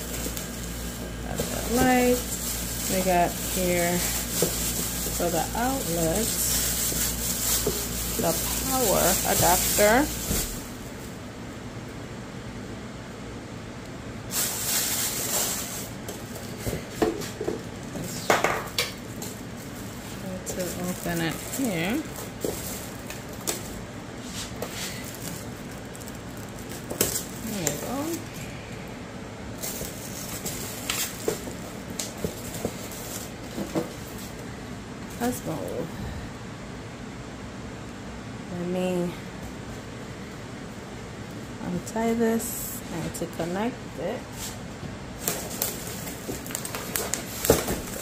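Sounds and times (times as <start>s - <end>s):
plastic wrap rustling: 0.0s - 11.2s, 14.3s - 28.3s, 29.5s - 34.5s, 45.2s - 48.0s.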